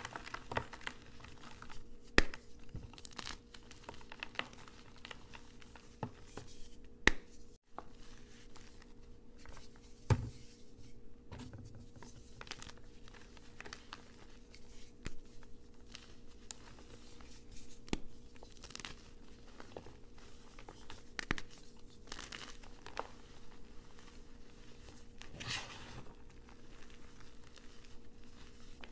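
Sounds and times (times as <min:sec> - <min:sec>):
hands crushing chalk: 0:00.0 - 0:07.4.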